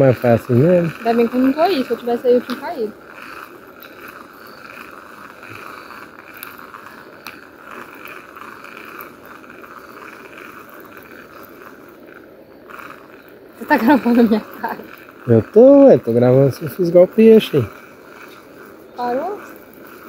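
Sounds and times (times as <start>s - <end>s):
continuous outdoor hiss: 0.0s - 20.0s
faint chirring chorus: 0.0s - 20.0s
small clicks: 0.5s - 15.3s.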